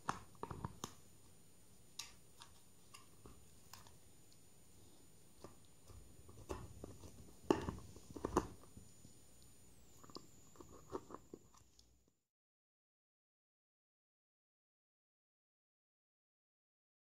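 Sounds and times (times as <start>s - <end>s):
dog chewing: 5.8s - 8.7s, 10.0s - 11.8s.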